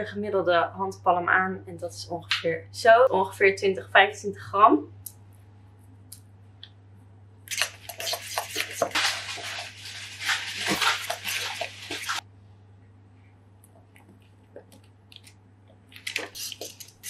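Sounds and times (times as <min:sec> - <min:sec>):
metal spoon stirring batter: 0:07.5 - 0:12.2, 0:16.0 - 0:17.0.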